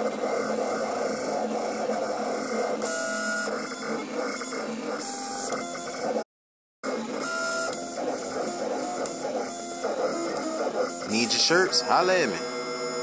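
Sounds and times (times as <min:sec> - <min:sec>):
vinyl plotter motors whirring: 0:00.0 - 0:06.2, 0:06.8 - 0:13.0.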